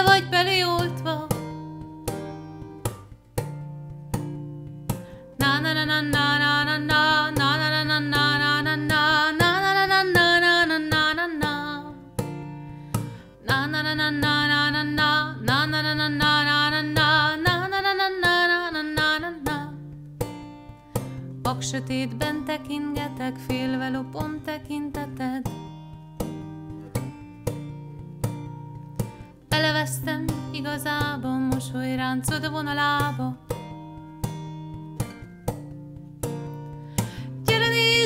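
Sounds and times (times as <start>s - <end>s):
woman singing: 0.0s - 1.8s, 5.2s - 12.6s, 13.3s - 20.0s, 21.4s - 25.9s, 29.5s - 33.8s, 37.1s - 38.0s
acoustic guitar: 0.0s - 38.0s.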